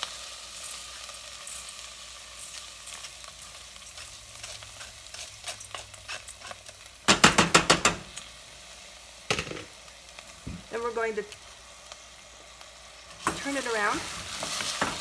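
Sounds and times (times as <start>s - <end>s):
rice sizzling in oil: 0.0s - 15.0s
strainer banged against pot: 7.1s - 8.1s.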